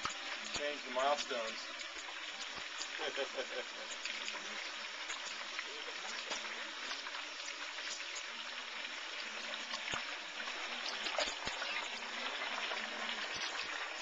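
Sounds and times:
hot oil bubbling and sizzling: 0.0 - 14.0.

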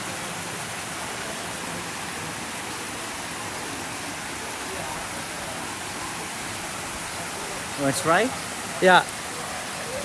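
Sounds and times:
water splashing into a pool: 0.0 - 10.0.

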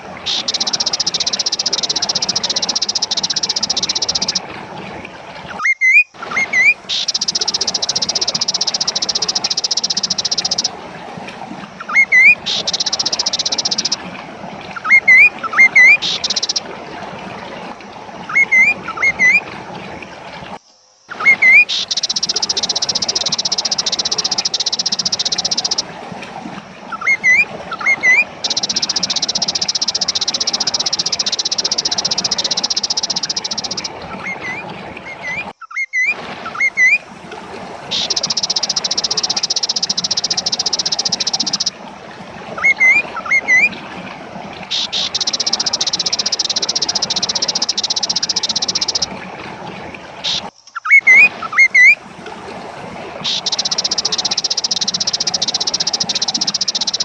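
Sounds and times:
bird whistling upslurred calls: 5.6 - 10.7, 11.8 - 14.0, 21.2 - 25.8, 26.9 - 37.0, 42.6 - 43.7, 44.7 - 49.1, 50.3 - 52.0.

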